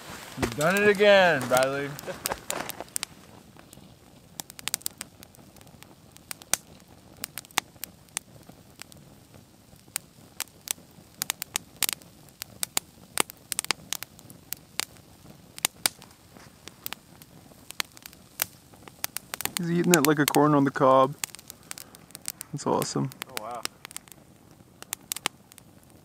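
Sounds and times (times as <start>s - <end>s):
squirrel gnawing pine cone: 0.3s - 3.3s, 17.7s - 24.2s.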